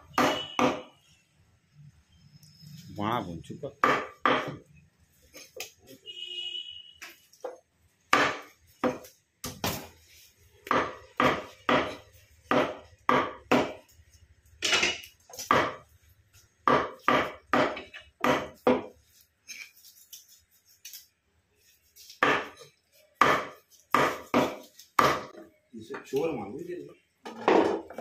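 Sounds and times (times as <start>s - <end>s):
cleaver chopping on wood block: 0.1s - 0.9s, 3.8s - 4.6s, 8.1s - 9.8s, 10.6s - 13.8s, 15.4s - 15.8s, 16.6s - 18.9s, 22.2s - 22.6s, 23.2s - 25.4s.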